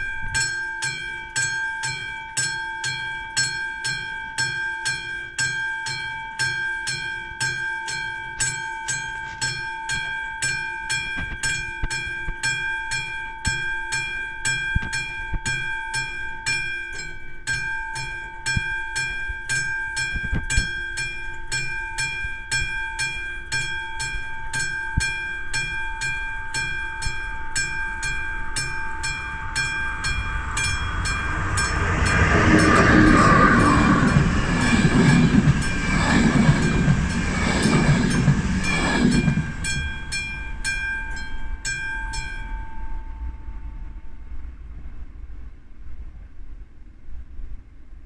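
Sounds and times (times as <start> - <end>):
level-crossing bell ringing: 0.0 - 36.0, 36.6 - 43.7
train wheels rumbling on rails: 17.0 - 46.4.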